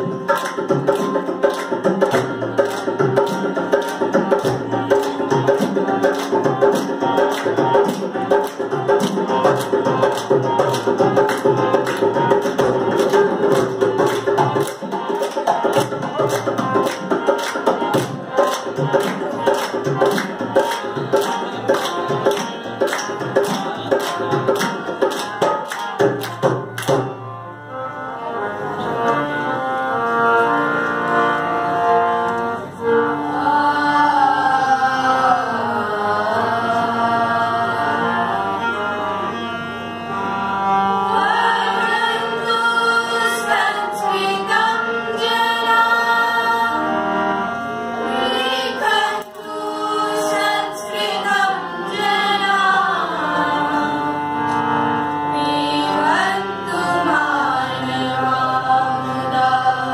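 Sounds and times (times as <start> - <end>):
rhythmic hand-clapping: 0.0 - 27.2
percussion: 0.0 - 27.5
children singing: 33.0 - 38.8, 40.9 - 47.4, 48.0 - 59.9.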